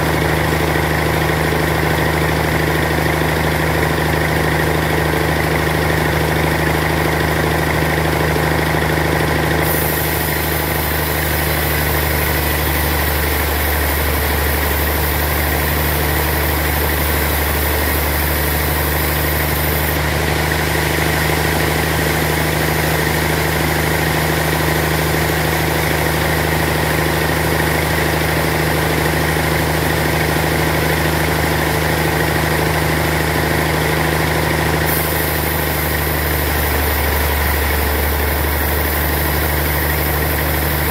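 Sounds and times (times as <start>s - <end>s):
band saw machine hum: 7.9s - 29.7s, 30.4s - 40.9s
high hiss of blade sawing wood: 9.6s - 20.0s, 34.9s - 40.9s.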